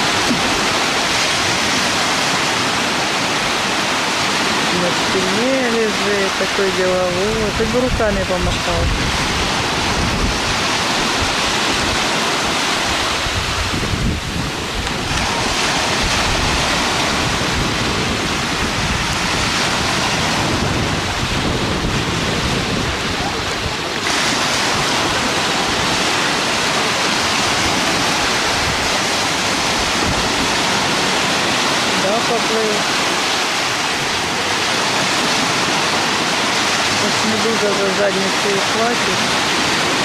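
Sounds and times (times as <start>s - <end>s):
waves breaking on shore: 0.0s - 40.0s
wind buffeting microphone: 0.0s - 40.0s.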